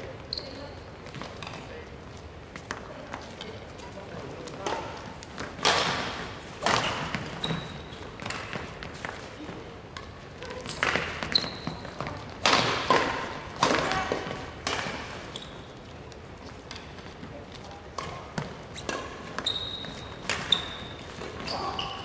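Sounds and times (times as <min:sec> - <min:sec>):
shoes squeaking on wooden floor: 0:00.2 - 0:00.8, 0:06.8 - 0:09.1, 0:10.4 - 0:12.3, 0:15.1 - 0:15.8, 0:18.4 - 0:22.0
rackets striking shuttlecock: 0:04.6 - 0:09.2, 0:09.9 - 0:15.2, 0:17.9 - 0:21.4.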